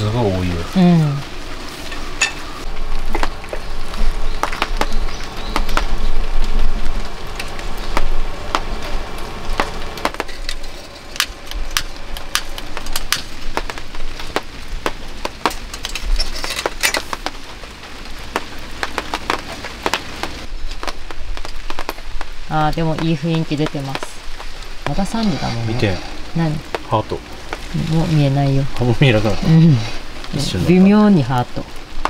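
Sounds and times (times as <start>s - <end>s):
rain pattering: 0.0s - 32.0s.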